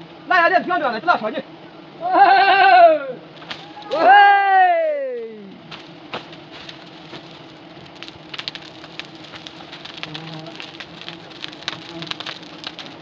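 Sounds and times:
crackles and clicks: 5.2s - 13.0s
bees buzzing: 5.5s - 13.0s.

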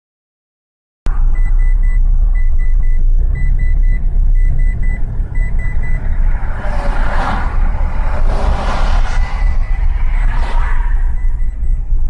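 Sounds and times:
car cabin road rumble: 1.1s - 12.0s
short high electronic beeps: 9.1s - 12.0s.

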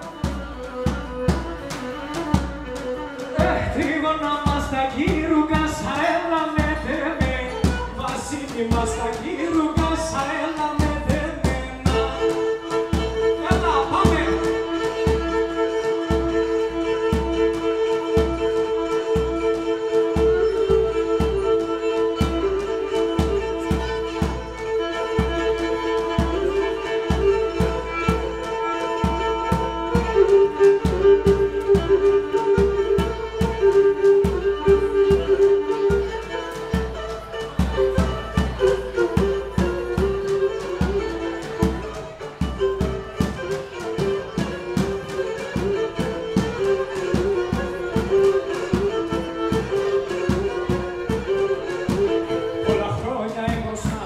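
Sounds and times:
bass drum beat: 0.0s - 15.5s, 51.9s - 54.0s
bowed lyra dance melody: 0.0s - 54.0s.

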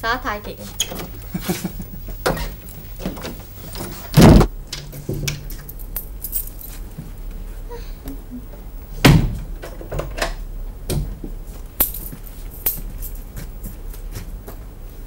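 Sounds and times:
door opening: 0.5s - 6.6s
heavy thump: 2.1s - 5.5s
keys jangling and clicking: 4.9s - 6.8s, 11.8s - 13.3s.

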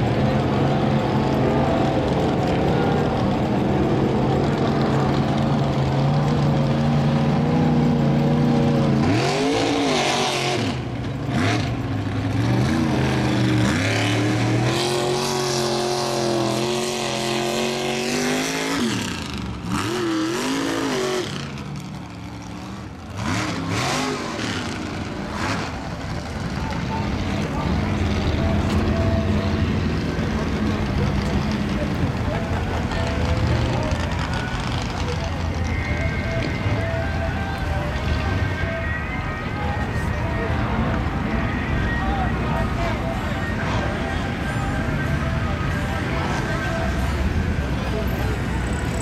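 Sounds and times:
engine revving: 0.0s - 32.2s.

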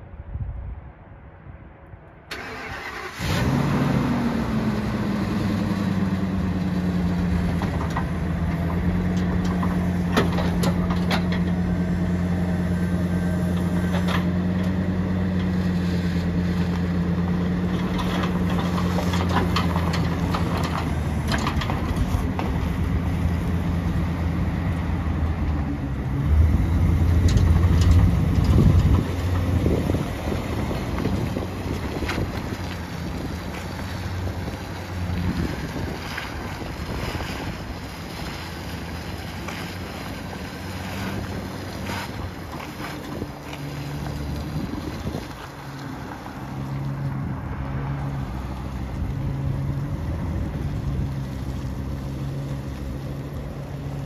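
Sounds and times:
pickup truck engine starting and idling: 2.2s - 54.0s
sharp clicks and clunks: 7.5s - 11.6s, 17.7s - 22.7s.

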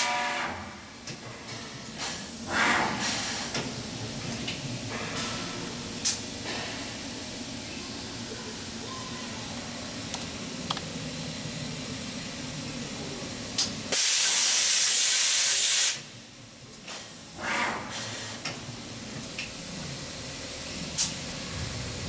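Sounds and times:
compressed air hissing: 2.0s - 3.6s, 13.9s - 16.1s
machine hum: 18.6s - 22.0s.

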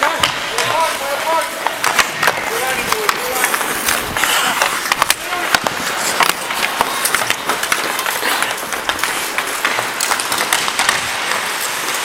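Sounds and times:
hockey sticks clacking: 0.0s - 12.0s
skates scraping on ice: 0.0s - 12.0s.

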